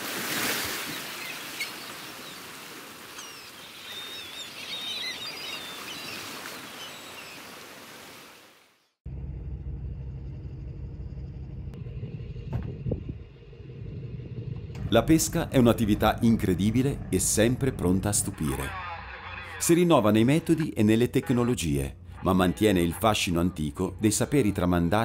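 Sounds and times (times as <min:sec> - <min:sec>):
rushing water wash: 0:00.0 - 0:04.4
birds calling: 0:00.7 - 0:08.0
low steady rumble: 0:09.1 - 0:19.5.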